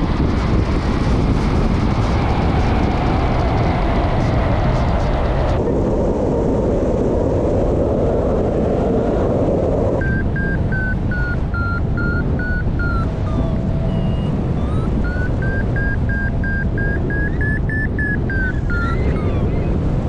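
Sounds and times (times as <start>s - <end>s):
wind rush on microphone: 0.0s - 20.0s
variometer beeping chirps: 10.0s - 20.0s.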